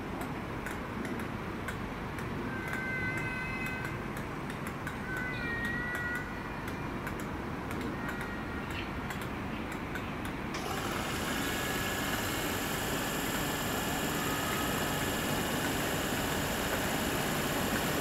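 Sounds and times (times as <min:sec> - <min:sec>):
electric train hiss and whine: 0:10.5 - 0:18.0.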